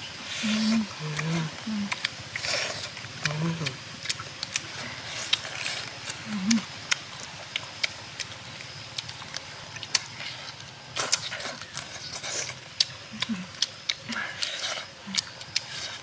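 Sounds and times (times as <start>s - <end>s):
steady hiss: 0.0s - 16.0s
person humming: 0.3s - 2.0s, 6.2s - 6.6s, 13.1s - 14.3s
person chewing with lip smacks: 0.4s - 16.0s.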